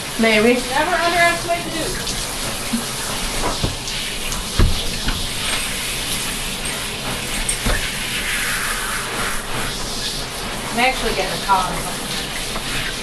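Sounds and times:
shower sprayer water hissing: 0:00.0 - 0:13.0
dull thumps: 0:02.7 - 0:05.7.

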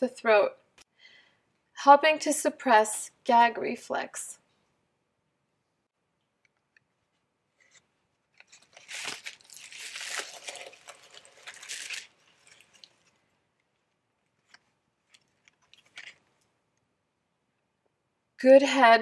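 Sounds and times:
paper and plastic crinkling: 0:07.6 - 0:13.3, 0:14.2 - 0:16.3.

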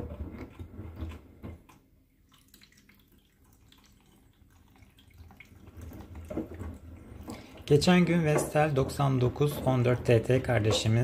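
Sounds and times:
water sloshing against door glass: 0:04.7 - 0:11.0
washing machine drum tumbling: 0:05.8 - 0:11.0.

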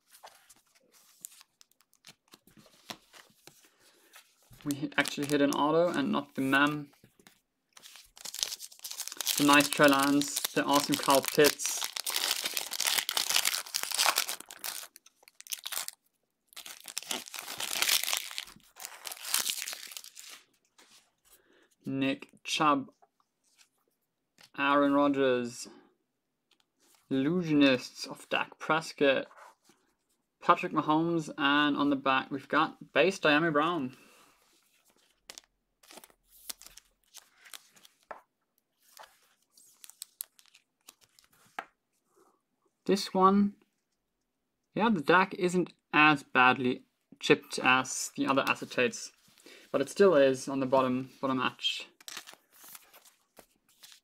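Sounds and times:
foil wrapper crinkling and tearing: 0:04.7 - 0:05.6, 0:07.8 - 0:20.5, 0:39.7 - 0:41.3, 0:52.0 - 0:54.0
plastic rustling: 0:07.8 - 0:20.4.

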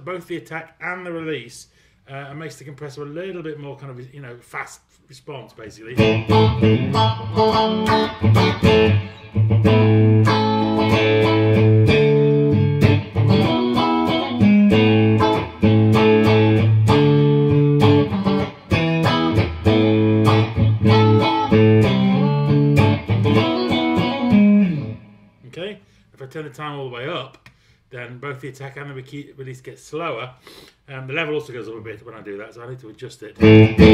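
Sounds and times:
clean electric guitar chords: 0:06.0 - 0:25.2, 0:33.4 - 0:33.9.

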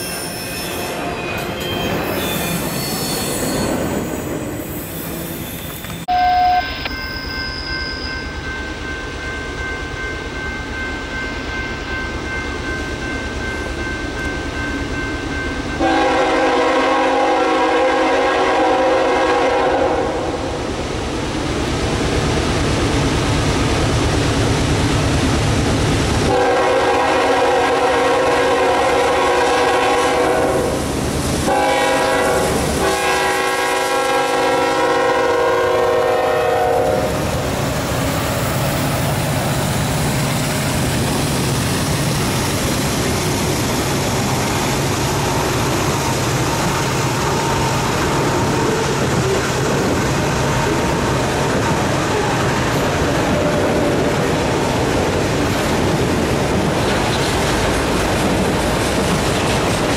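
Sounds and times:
train rumble and wheel clatter: 0:00.0 - 0:59.9
locomotive air horn blasts: 0:06.1 - 0:06.9, 0:15.8 - 0:20.5, 0:26.3 - 0:30.8, 0:31.4 - 0:37.2.

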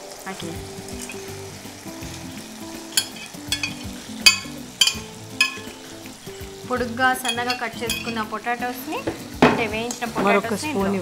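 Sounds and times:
potatoes sizzling in a pan: 0:00.0 - 0:11.0
spoon clinking on glass: 0:02.9 - 0:05.9, 0:07.2 - 0:08.3.

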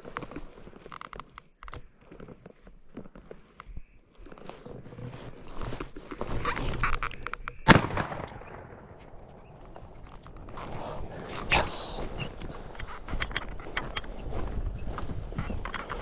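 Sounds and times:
rustling movement: 0:00.0 - 0:07.6
shotgun shot: 0:07.6 - 0:09.0.

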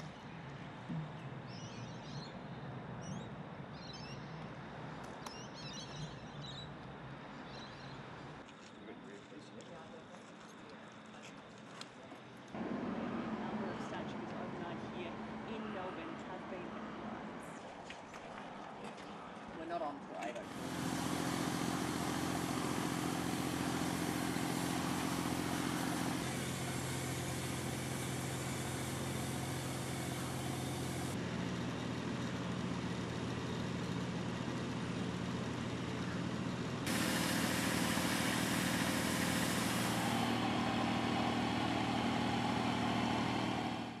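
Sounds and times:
pressure washer engine running: 0:20.4 - 0:31.2, 0:36.8 - 0:44.0
high-pressure water spray hissing: 0:20.5 - 0:31.2, 0:36.9 - 0:43.9.

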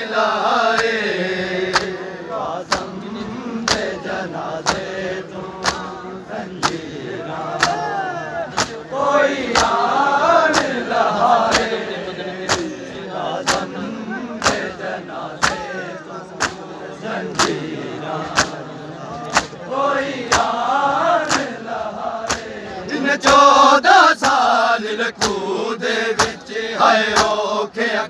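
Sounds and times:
men chanting a lament: 0:00.0 - 0:28.0
hands slapping bare chests: 0:01.7 - 0:02.0, 0:02.6 - 0:03.0, 0:03.6 - 0:04.9, 0:05.6 - 0:06.9, 0:07.5 - 0:11.8, 0:12.4 - 0:12.8, 0:13.4 - 0:13.7, 0:14.4 - 0:16.7, 0:17.3 - 0:19.6, 0:20.2 - 0:20.6, 0:21.2 - 0:21.6, 0:22.2 - 0:22.6, 0:25.2 - 0:25.5, 0:26.2 - 0:26.4, 0:27.1 - 0:27.4.

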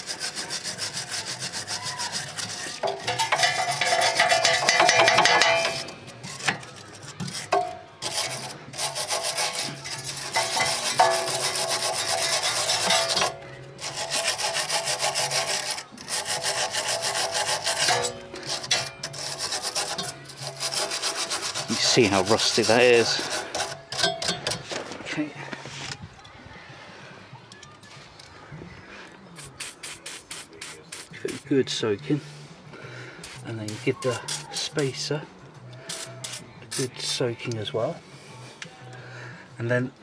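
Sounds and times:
wire brush scrubbing rusty metal: 0:00.0 - 0:25.0, 0:29.4 - 0:31.5, 0:33.2 - 0:35.2, 0:35.8 - 0:37.4.

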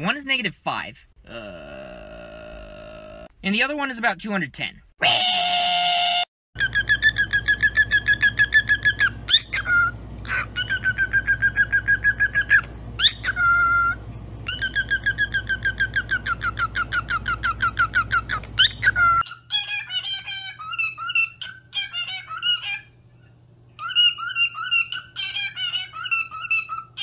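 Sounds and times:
cockatiel chirping: 0:06.6 - 0:22.9, 0:23.8 - 0:27.0.

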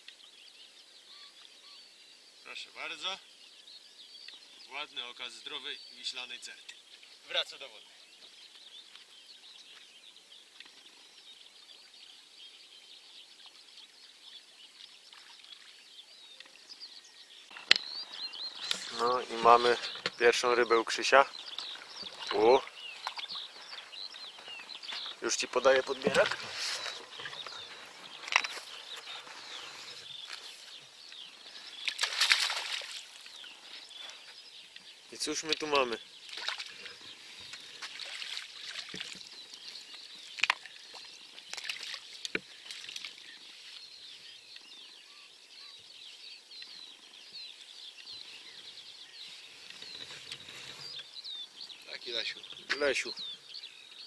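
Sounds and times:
songbirds chirping and warbling: 0:00.0 - 0:54.0
fish thrashing and splashing: 0:31.8 - 0:33.3, 0:36.3 - 0:37.0, 0:37.7 - 0:39.4, 0:40.4 - 0:43.2.

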